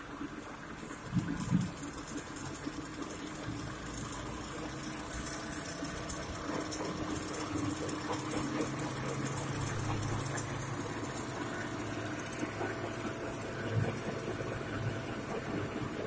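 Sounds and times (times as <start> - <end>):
machine hum and rush: 4.8 - 16.0.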